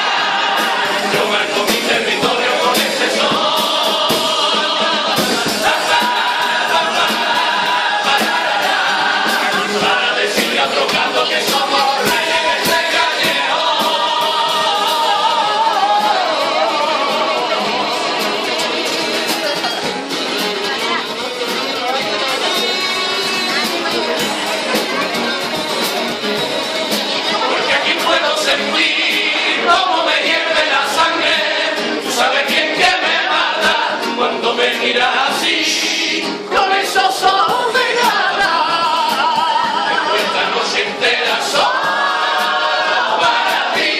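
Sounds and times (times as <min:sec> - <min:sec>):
sharp percussive hits: 0:00.0 - 0:15.5
steady beat: 0:00.0 - 0:20.7, 0:22.1 - 0:43.9
chorus singing: 0:00.0 - 0:43.9.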